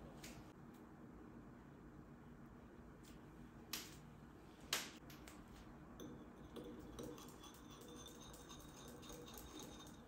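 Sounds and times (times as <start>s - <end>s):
whisk clinking against glass bowl: 6.0s - 10.0s.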